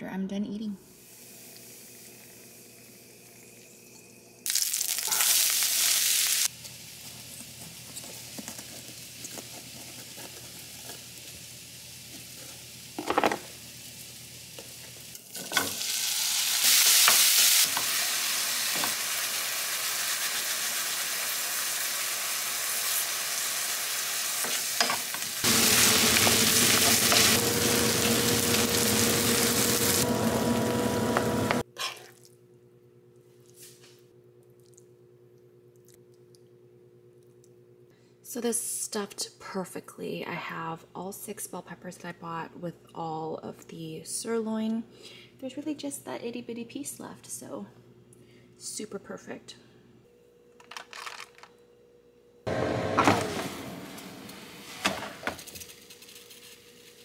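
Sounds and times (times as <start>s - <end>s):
meat sizzling in a skillet: 4.4s - 9.5s, 10.4s - 31.6s.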